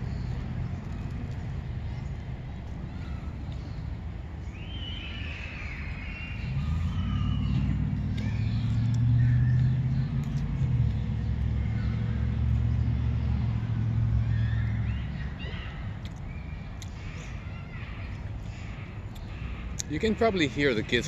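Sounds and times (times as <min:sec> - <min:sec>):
low engine rumble: 0:00.0 - 0:21.0
faint high calls: 0:04.4 - 0:21.0.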